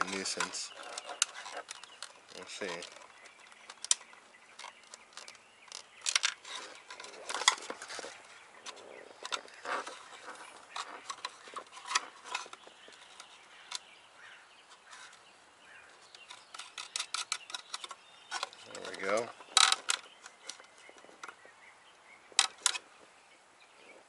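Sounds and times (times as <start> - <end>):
parts rattling: 0.0 - 13.8, 16.0 - 21.4
nuts clicking onto studs: 16.0 - 21.4.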